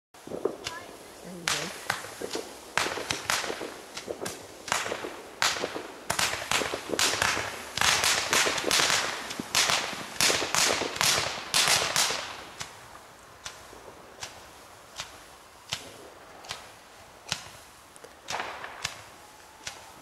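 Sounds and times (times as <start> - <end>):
fireworks popping: 0.2 - 20.0.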